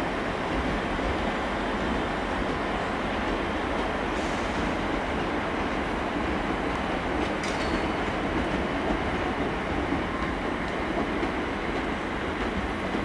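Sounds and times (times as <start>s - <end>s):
train wheels on rail: 0.0s - 13.0s.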